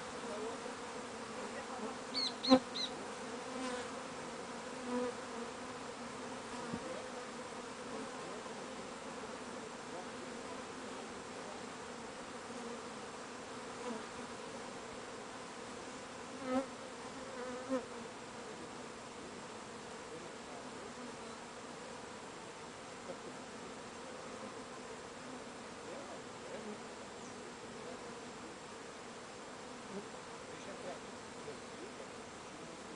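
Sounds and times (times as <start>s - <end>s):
single bee buzzing close by: 0.0s - 25.8s
bee swarm humming: 0.0s - 32.9s.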